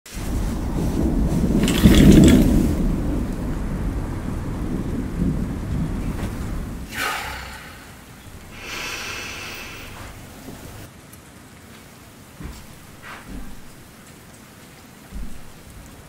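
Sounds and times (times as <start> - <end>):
thunder rumbling: 0.1 - 10.9, 12.3 - 14.2, 15.1 - 16.0
rain hissing: 0.1 - 16.0.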